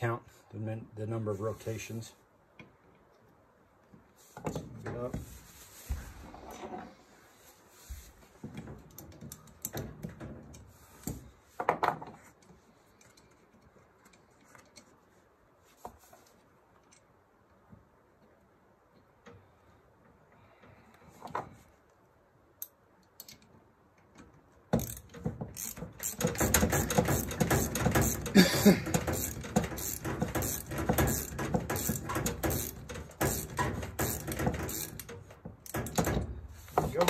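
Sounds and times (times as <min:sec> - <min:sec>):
ratchet wrench clicking: 0:24.8 - 0:36.0.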